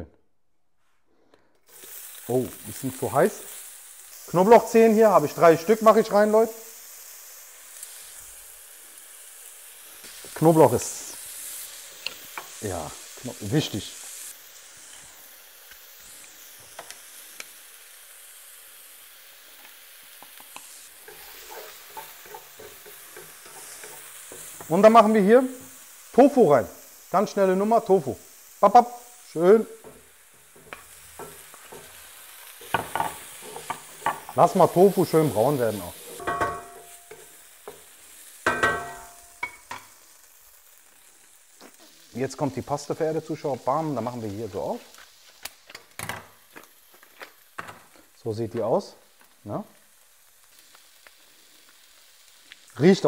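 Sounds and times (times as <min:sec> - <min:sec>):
onions sizzling in a wok: 0:01.4 - 0:53.0
wooden spatula scraping: 0:21.0 - 0:25.7, 0:29.6 - 0:37.8
spatula knocking metal wok: 0:36.2 - 0:39.8.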